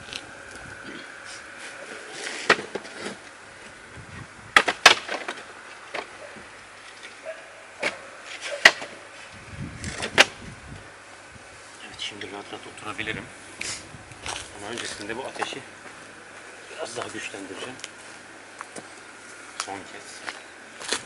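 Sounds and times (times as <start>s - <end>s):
wood snapping and cracking: 4.6s - 6.1s.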